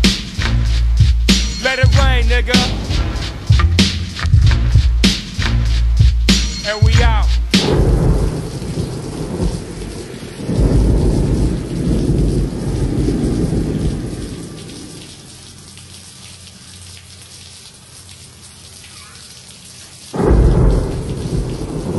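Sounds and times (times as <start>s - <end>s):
rain falling: 0.0s - 21.9s
thunder rumbling: 1.0s - 5.0s, 6.8s - 15.2s, 20.2s - 21.9s
thunder crash: 2.6s - 4.0s, 7.6s - 15.0s, 20.2s - 21.9s.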